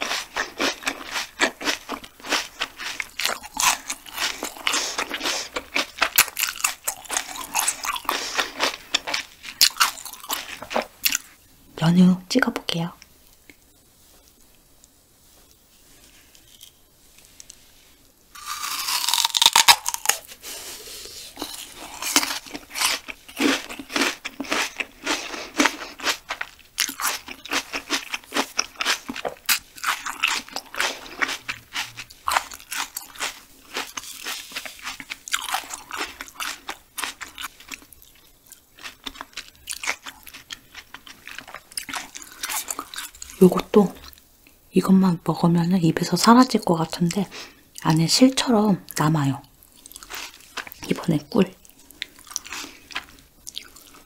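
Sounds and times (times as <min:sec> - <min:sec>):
crisp wet chewing: 0:00.0 - 0:11.3, 0:21.4 - 0:44.2, 0:49.6 - 0:54.0.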